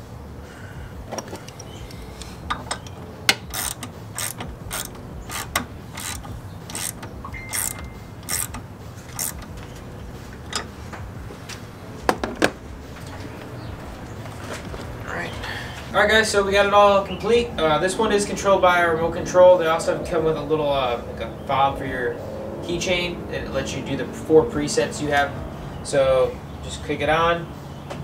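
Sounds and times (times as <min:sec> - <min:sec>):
ratchet wrench clicking: 0:01.2 - 0:09.6.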